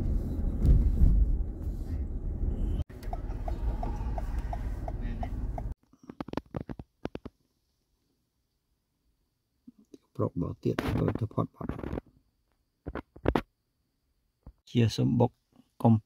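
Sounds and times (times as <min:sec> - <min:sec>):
car cabin road rumble: 0:00.0 - 0:05.8
turn signal ticking: 0:02.9 - 0:05.8.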